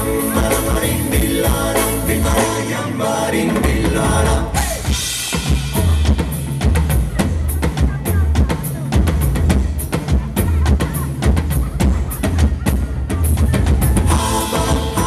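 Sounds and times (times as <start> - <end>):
drums and bass steady beat: 0.0 - 15.0
live band playing: 0.0 - 15.0.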